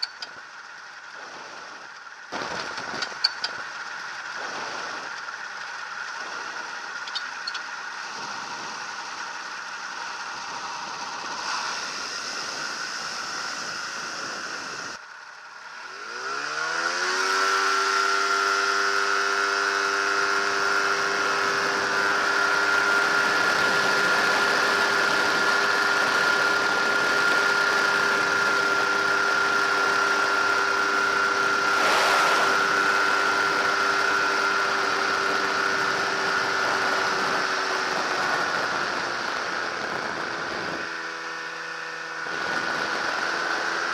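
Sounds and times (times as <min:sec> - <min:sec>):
microlight engine and propeller: 0:00.0 - 0:43.9.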